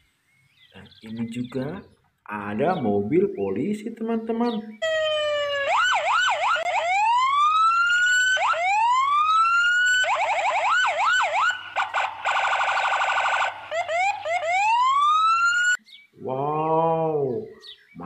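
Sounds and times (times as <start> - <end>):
police siren: 4.8 - 15.8.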